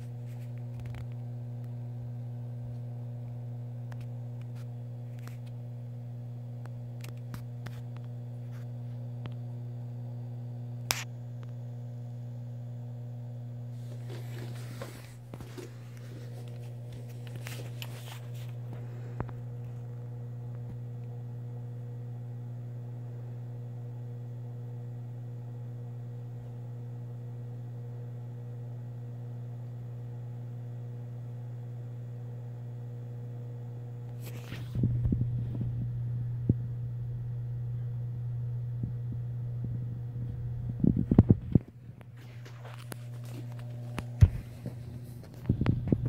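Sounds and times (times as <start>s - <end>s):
aquarium pumps humming: 0.0s - 46.0s
low rumbling noise: 34.7s - 42.0s.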